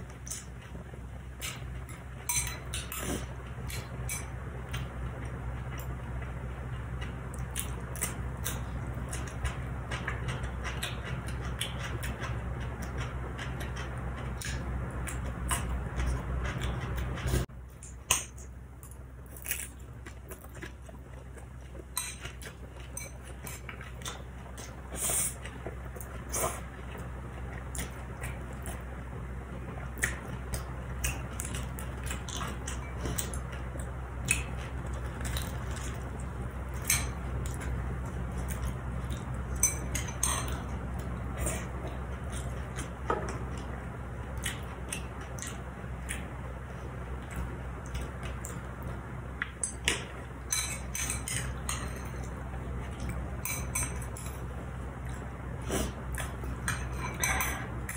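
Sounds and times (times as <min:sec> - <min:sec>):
chewing crunchy food: 0:00.0 - 0:57.9
steady low hum: 0:00.0 - 0:57.9.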